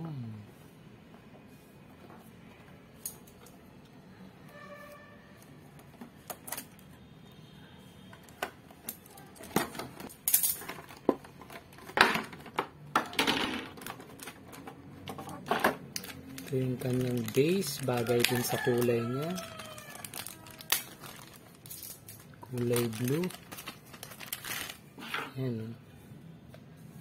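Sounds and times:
plastic packaging crinkling: 13.7 - 25.0.

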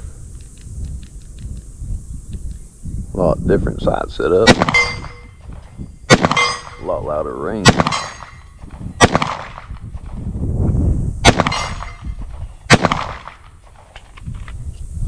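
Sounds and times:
handgun shots: 4.4 - 5.3, 6.1 - 6.8, 7.6 - 8.4, 9.0 - 9.8, 11.3 - 12.1, 12.7 - 13.5
steel target ringing: 4.4 - 5.4, 6.1 - 8.6, 11.4 - 12.2.

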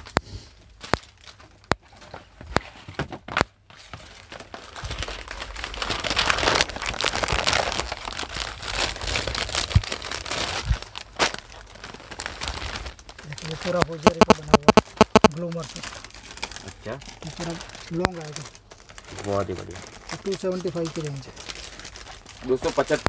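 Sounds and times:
plastic packaging crinkling: 0.0 - 2.6, 3.4 - 23.0.

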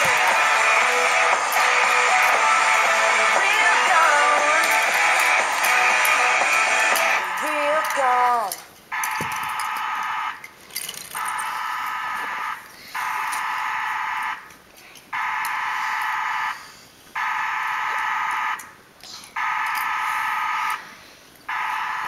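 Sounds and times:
electronic buzzer blasts: 0.0 - 7.6.

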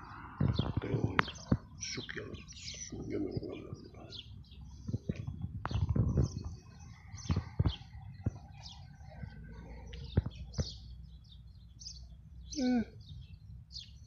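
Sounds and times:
small birds chirping: 0.0 - 14.0
dull thumps and knocks: 4.8 - 8.5.

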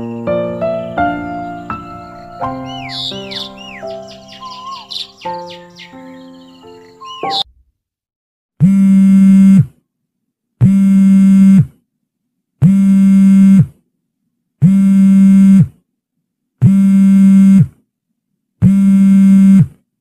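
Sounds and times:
smartphone vibrating buzz: 8.6 - 9.8, 10.6 - 11.8, 12.6 - 13.8, 14.6 - 15.8, 16.6 - 17.8, 18.6 - 19.8.

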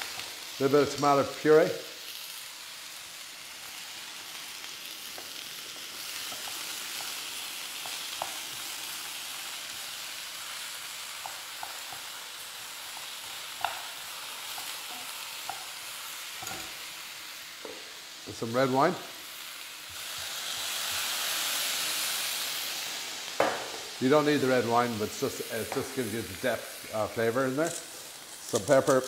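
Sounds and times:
food sizzling in oil: 0.0 - 29.0
wooden spoon knocking on pan: 23.4 - 23.9.

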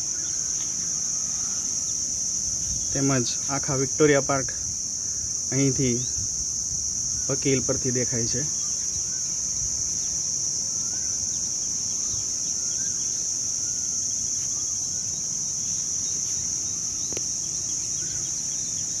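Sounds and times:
insects droning: 0.0 - 19.0
faint bird chirps: 8.5 - 10.2, 10.8 - 19.0.

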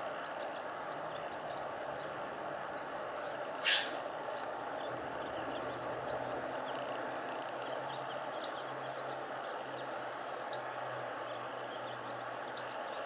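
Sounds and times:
steady hiss: 0.0 - 5.2
small birds twittering: 0.0 - 13.0
bird short sharp high call: 3.6 - 4.0.

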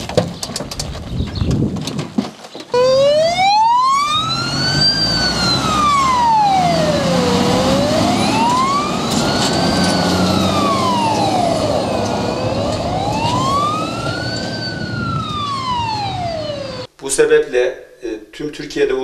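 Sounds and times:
fire truck wailing siren: 2.8 - 16.9
truck engine running: 2.8 - 16.9.

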